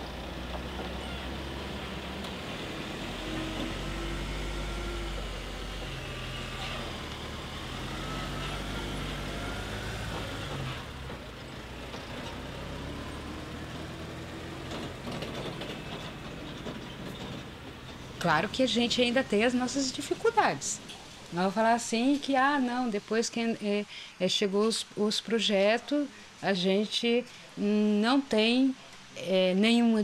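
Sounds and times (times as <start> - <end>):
truck engine pulling away: 0.0 - 22.9.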